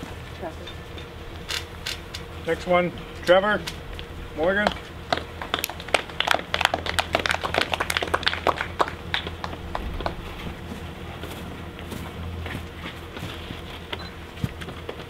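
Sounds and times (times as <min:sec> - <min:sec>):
people clapping: 0:04.6 - 0:10.4.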